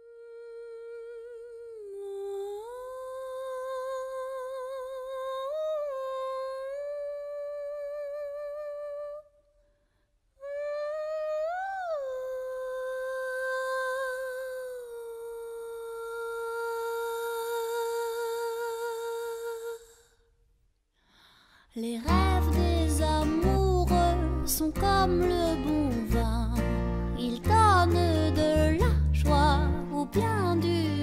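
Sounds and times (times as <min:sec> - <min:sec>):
person humming with vibrato: 0:00.0 - 0:05.0.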